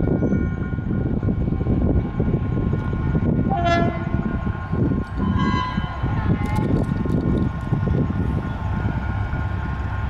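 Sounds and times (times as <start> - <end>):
diesel locomotive rumbling: 0.0 - 10.0
train horn blast: 3.5 - 4.4, 5.2 - 6.0.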